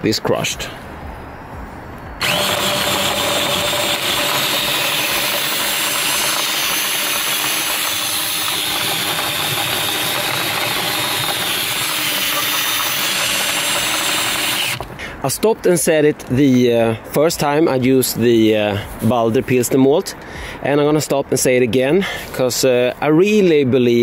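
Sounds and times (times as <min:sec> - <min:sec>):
drill motor whine: 0:02.2 - 0:14.9
grain grinding: 0:02.2 - 0:14.9.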